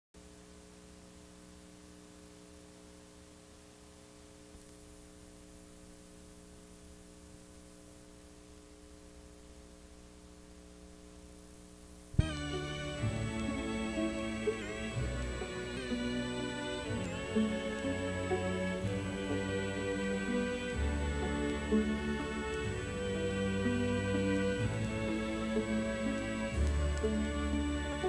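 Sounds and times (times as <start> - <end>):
electrical mains hum: 0.2 - 28.0
faint tape hiss: 0.2 - 28.0
music: 12.1 - 28.0.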